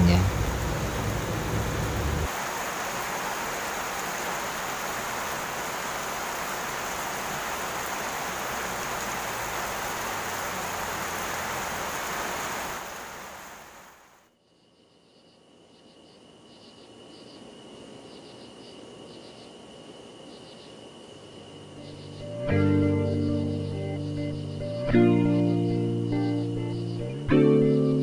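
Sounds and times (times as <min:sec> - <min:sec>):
steady rain falling: 0:00.0 - 0:14.3.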